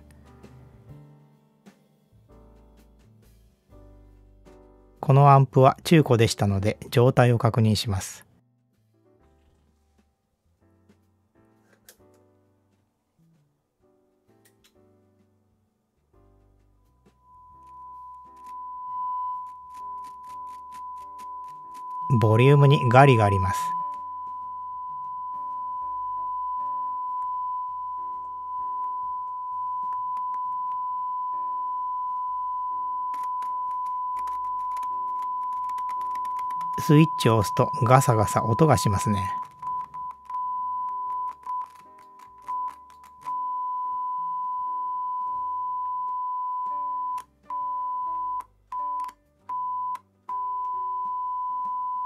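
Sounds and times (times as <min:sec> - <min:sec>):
background music: 0:00.0 - 0:08.3
sine test tone: 0:17.1 - 0:41.8, 0:42.4 - 0:52.0.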